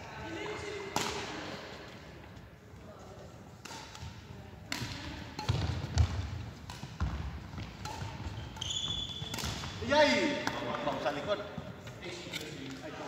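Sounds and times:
rackets striking shuttlecock: 0.9 - 1.4, 3.6 - 11.0.

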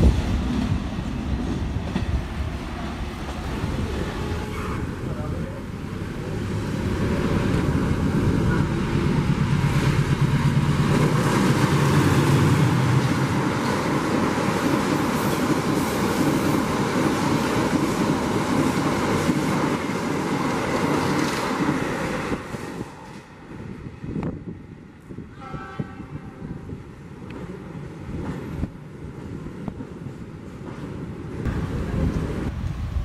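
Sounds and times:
train wheels rushing on rails: 0.0 - 33.0
locomotive engine drone: 3.4 - 13.7.

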